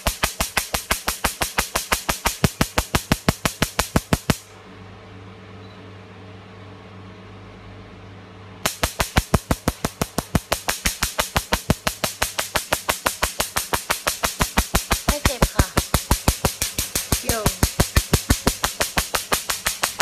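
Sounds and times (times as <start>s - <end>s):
laser sharp snapping pulses: 0.0s - 4.5s, 8.6s - 20.0s
machine steady hum: 0.0s - 20.0s.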